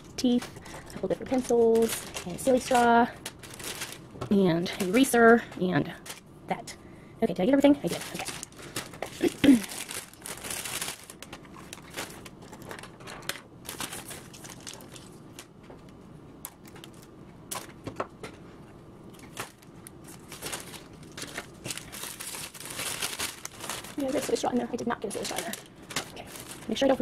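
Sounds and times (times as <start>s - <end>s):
plastic bags crinkling: 0.0s - 6.2s, 7.7s - 15.6s, 16.4s - 17.8s, 19.2s - 27.0s.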